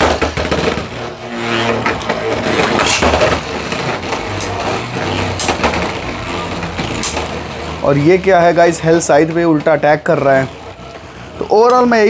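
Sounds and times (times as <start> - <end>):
spinning tops clacking together: 0.0 - 10.6
spinning tops whirring and grinding: 0.0 - 12.0.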